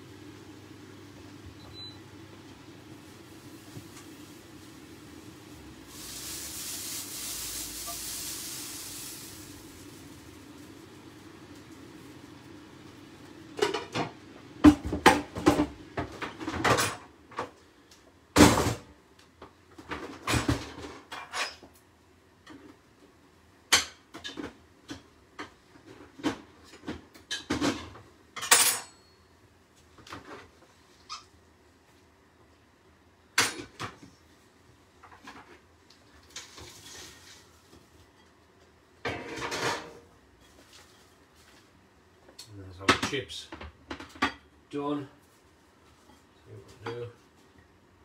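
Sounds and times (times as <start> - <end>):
frying pan and utensils clattering: 13.6 - 17.1, 26.3 - 29.0, 39.0 - 41.1.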